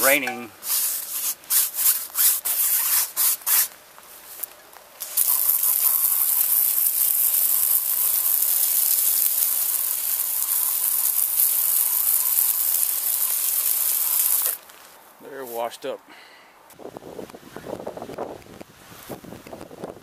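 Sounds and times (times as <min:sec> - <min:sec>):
hose spraying water: 0:00.0 - 0:03.7, 0:05.0 - 0:14.7.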